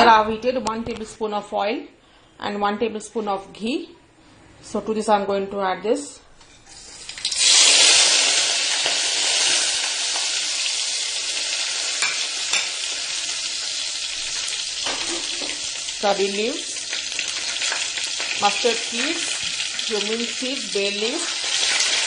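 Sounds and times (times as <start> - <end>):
sizzling in hot oil: 6.7 - 22.0.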